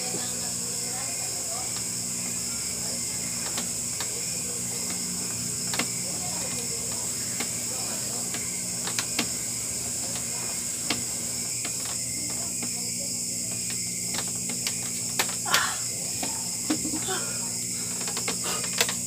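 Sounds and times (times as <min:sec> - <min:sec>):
steady high hiss: 0:00.0 - 0:19.0.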